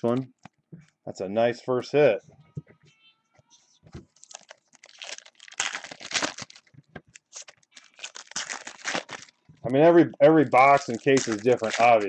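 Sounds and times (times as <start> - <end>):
cards and wrappers rustling: 4.0 - 12.0.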